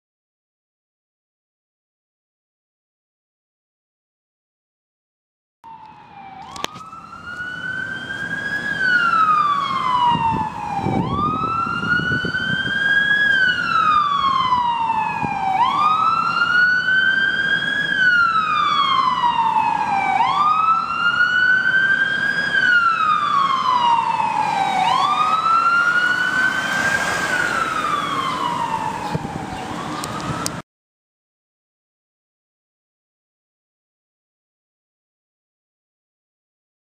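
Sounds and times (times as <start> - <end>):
ambulance siren wailing: 5.6 - 30.6.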